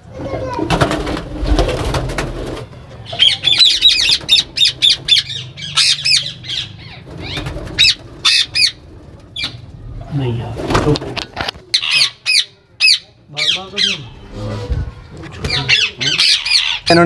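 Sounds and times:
wings fluttering: 0:00.2 - 0:11.7
parakeet squawking: 0:03.0 - 0:09.6, 0:11.7 - 0:14.3, 0:15.5 - 0:17.0.

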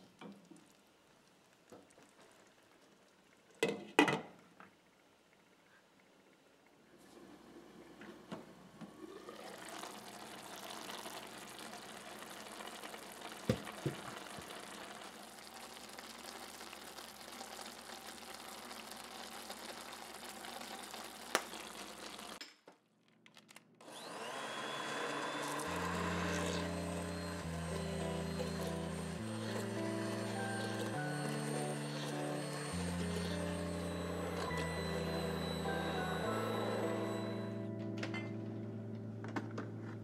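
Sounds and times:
soup simmering in pot: 0:00.1 - 0:03.6, 0:09.0 - 0:22.4
immersion blender running: 0:08.8 - 0:22.4, 0:23.8 - 0:37.8
soft background music: 0:25.7 - 0:40.0.

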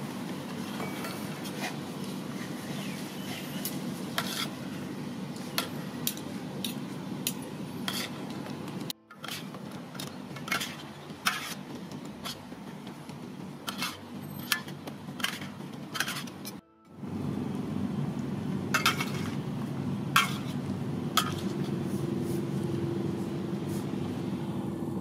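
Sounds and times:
steady low hum: 0:03.9 - 0:25.0
cutlery clinking on metal tray: 0:09.1 - 0:11.6, 0:13.6 - 0:16.6, 0:18.8 - 0:19.4, 0:20.2 - 0:20.6, 0:21.2 - 0:21.7.

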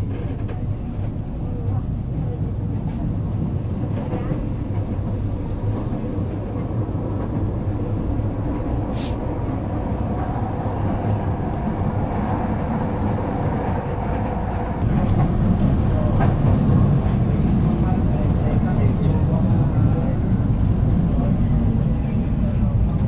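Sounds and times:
train car rumble: 0:00.0 - 0:23.0
short hiss: 0:08.9 - 0:09.2.

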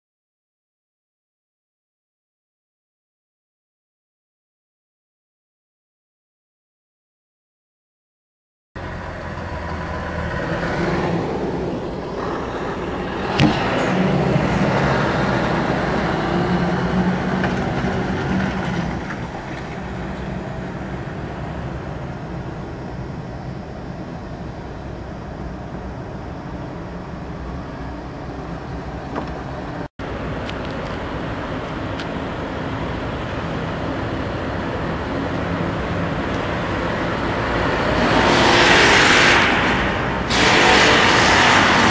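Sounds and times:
diesel truck pulling away: 0:08.8 - 0:41.9
hiss: 0:37.8 - 0:41.9.

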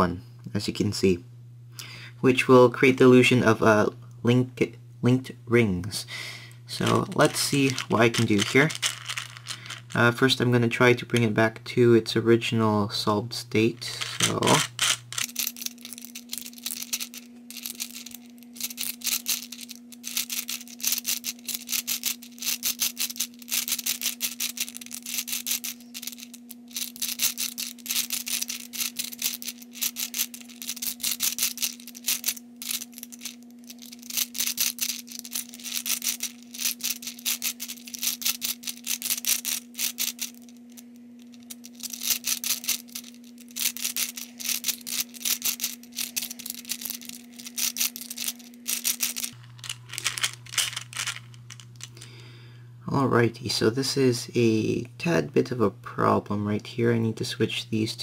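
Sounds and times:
plastic puzzle balls clicking: 0:06.8 - 0:10.0, 0:13.9 - 0:40.5, 0:41.3 - 0:52.0.

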